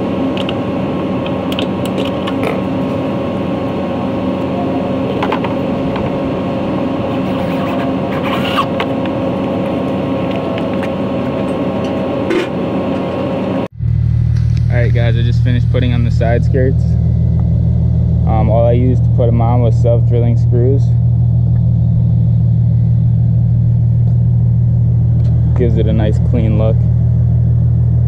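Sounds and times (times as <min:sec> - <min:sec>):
steady mechanical hum: 0:00.0 - 0:28.0.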